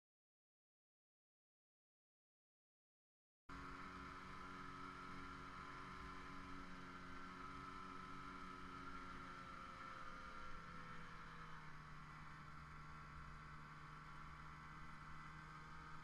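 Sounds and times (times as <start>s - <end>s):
snowmobile engine running: 3.5s - 16.0s.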